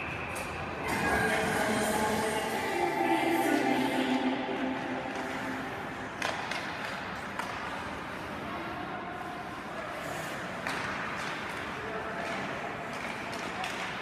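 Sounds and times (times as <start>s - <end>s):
hockey sticks and puck clacking: 0.0s - 0.7s, 6.1s - 8.1s, 10.0s - 14.0s.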